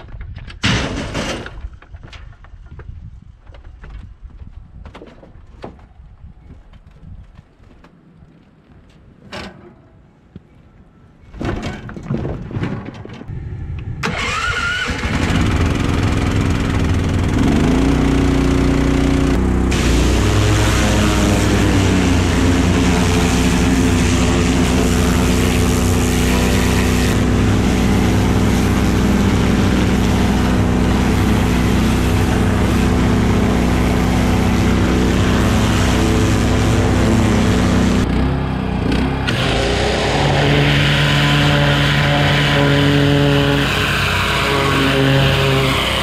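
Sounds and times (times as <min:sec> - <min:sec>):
pressure washer engine running: 0:14.2 - 0:46.0
water spray hissing on metal: 0:19.7 - 0:38.0.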